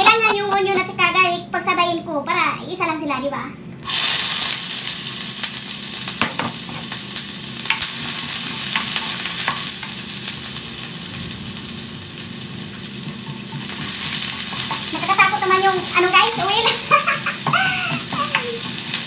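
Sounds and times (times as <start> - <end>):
onion and garlic sizzling in oil: 3.8 - 19.0
spatula scraping a pan: 13.0 - 16.8.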